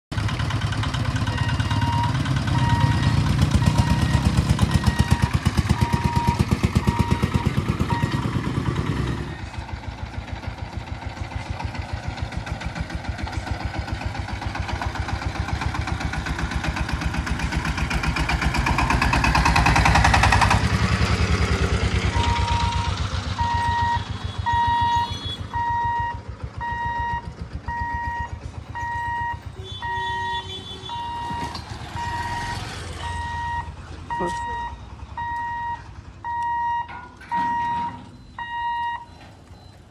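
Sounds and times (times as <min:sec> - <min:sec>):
motorcycle engines running: 0:00.1 - 0:37.2
crossing warning buzzer beeping: 0:01.2 - 0:09.5, 0:22.0 - 0:39.9
vehicle passing: 0:10.3 - 0:30.0, 0:30.9 - 0:36.6.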